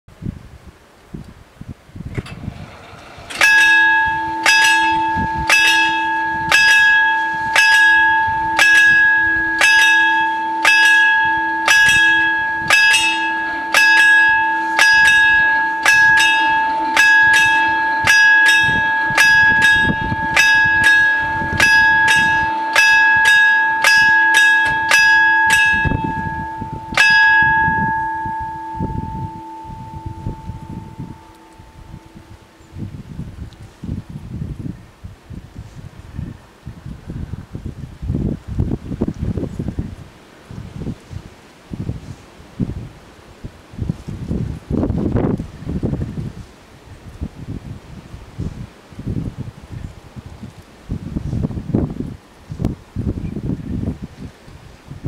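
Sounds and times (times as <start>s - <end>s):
level crossing bells ringing: 2.4s - 33.1s.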